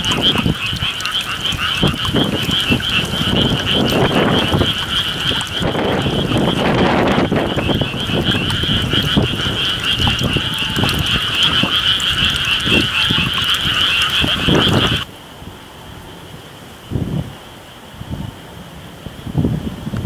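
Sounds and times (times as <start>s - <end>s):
tree frogs calling in chorus: 0.0s - 15.1s
wind rumbling on microphone: 0.0s - 20.0s.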